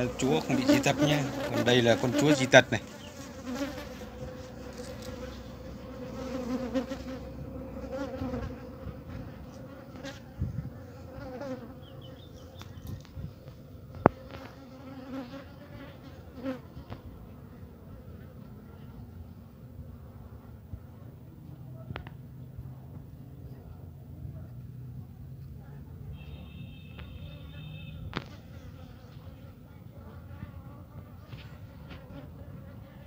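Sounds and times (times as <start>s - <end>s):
bees buzzing: 0.0s - 17.0s.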